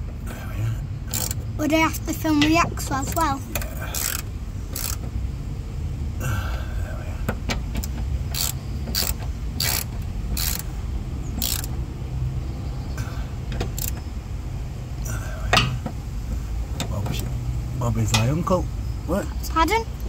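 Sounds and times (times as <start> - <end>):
ratchet spanner clicking: 1.1 - 1.4, 3.5 - 5.1, 7.8 - 10.7, 11.3 - 11.8, 13.5 - 14.1.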